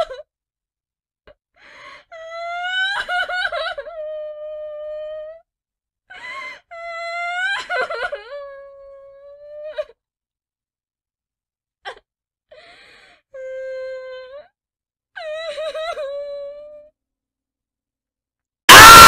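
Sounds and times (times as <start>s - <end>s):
gasping breath: 12.6s - 13.3s
person crying and wailing: 18.7s - 19.0s.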